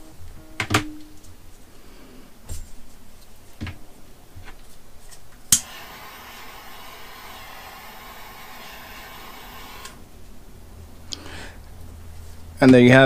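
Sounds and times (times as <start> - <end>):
torch lighter clicking: 5.5 - 7.7
torch flame hissing: 5.5 - 10.0.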